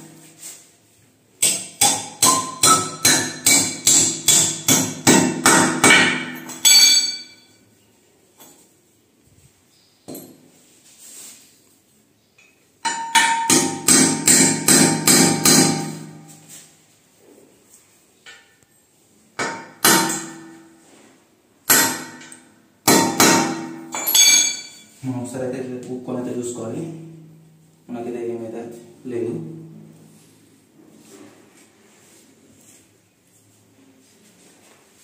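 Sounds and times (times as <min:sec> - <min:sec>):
ringing hammer blows: 0:05.9 - 0:07.6, 0:23.0 - 0:24.9.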